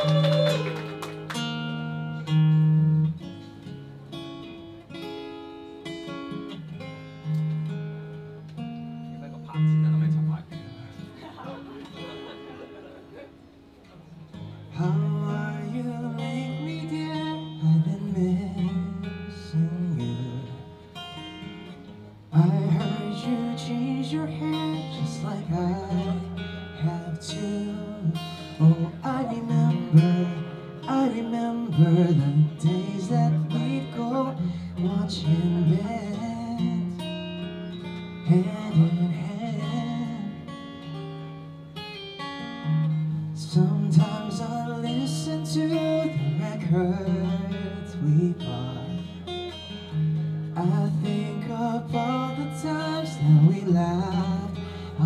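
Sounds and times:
strummed acoustic guitar: 0:00.0 - 0:55.0
man singing: 0:14.7 - 0:20.8, 0:22.3 - 0:37.2, 0:38.2 - 0:40.6, 0:43.3 - 0:49.4, 0:50.5 - 0:55.0.

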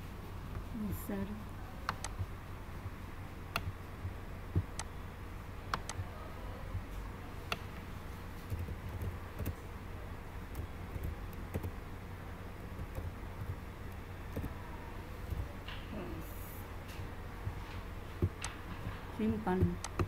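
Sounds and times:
low steady hum: 0:00.0 - 0:20.0
keyboard keystrokes: 0:01.8 - 0:02.3, 0:03.5 - 0:04.9, 0:05.7 - 0:06.1, 0:07.5 - 0:09.6, 0:10.5 - 0:11.8, 0:12.7 - 0:14.6, 0:15.2 - 0:15.8, 0:18.2 - 0:20.0
mouse clicks: 0:01.8 - 0:02.3, 0:03.5 - 0:04.9, 0:05.7 - 0:06.1, 0:19.7 - 0:20.0.

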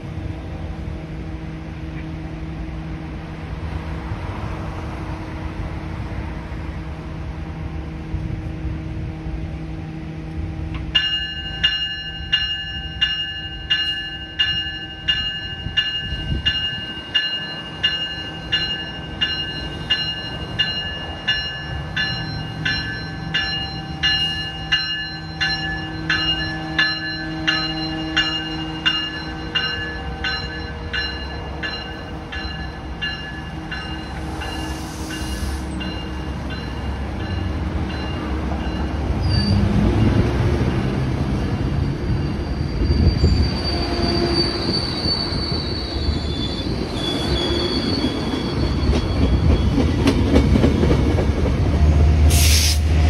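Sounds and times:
train rumbling past: 0:00.0 - 0:53.0
warning bell dinging: 0:11.0 - 0:34.2
wheel squeal: 0:41.7 - 0:50.0.

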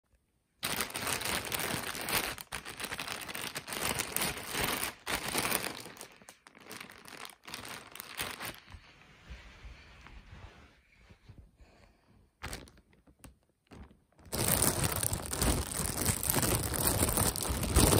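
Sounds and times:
plastic bag crinkling: 0:00.6 - 0:08.8, 0:12.4 - 0:17.9.

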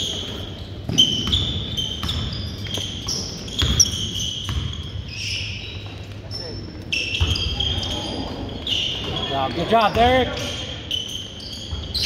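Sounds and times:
sneakers squeaking on court: 0:00.0 - 0:12.0
basketball bouncing on wooden floor: 0:00.9 - 0:04.9.

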